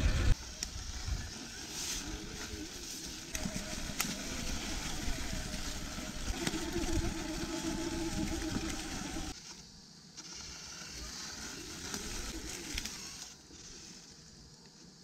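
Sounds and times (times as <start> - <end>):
tyres rolling over grass: 0.0 - 9.4
electric motor hum: 0.0 - 15.0.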